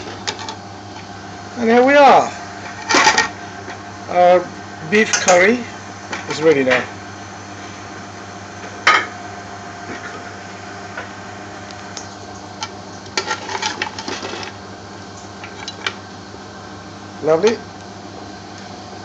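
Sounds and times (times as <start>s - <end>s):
mechanical hum: 0.0s - 19.0s.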